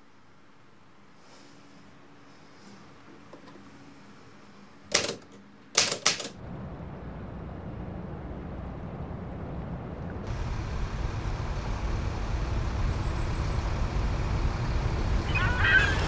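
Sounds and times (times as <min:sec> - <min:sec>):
sharp mechanical clicks: 0:04.9 - 0:06.4
low rumble: 0:06.4 - 0:16.0.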